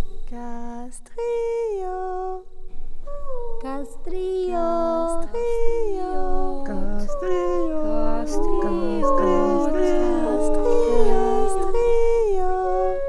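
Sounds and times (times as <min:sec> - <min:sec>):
a cappella group singing: 0:04.4 - 0:13.0.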